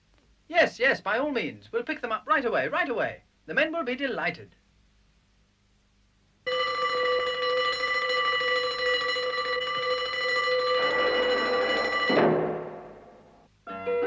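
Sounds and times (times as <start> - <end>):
electric alarm bell ringing: 6.5 - 13.3.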